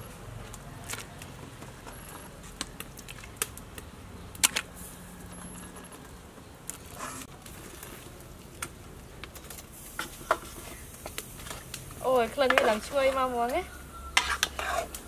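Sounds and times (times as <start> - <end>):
metal spatula tapping metal pot: 12.2 - 14.8.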